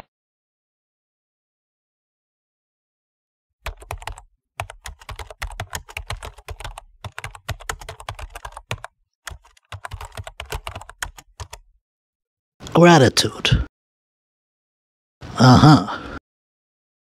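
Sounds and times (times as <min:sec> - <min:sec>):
laptop keyboard typing: 0:03.6 - 0:11.7.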